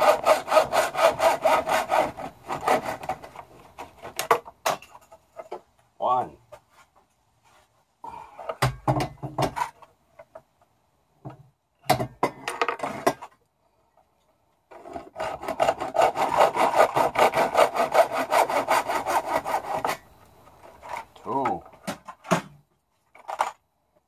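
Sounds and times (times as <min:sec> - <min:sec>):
hand saw cutting tube: 0:00.0 - 0:04.2, 0:14.7 - 0:20.0.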